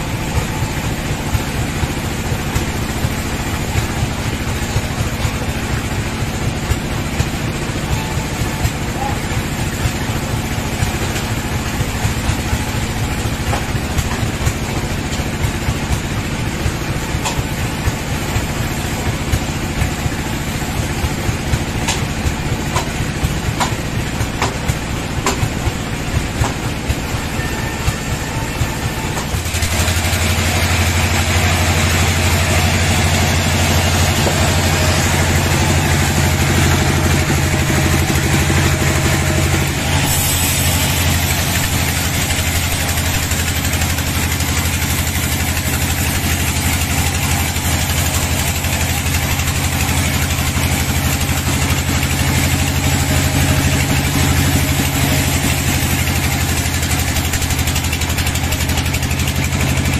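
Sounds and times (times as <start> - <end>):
sawmill engine running: 0.0 - 59.9
sharp knocks of log clamping: 23.6 - 23.8.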